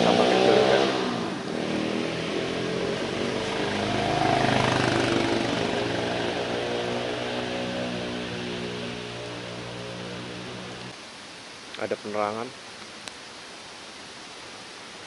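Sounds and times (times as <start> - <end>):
vehicle engine revving: 0.0 - 11.0.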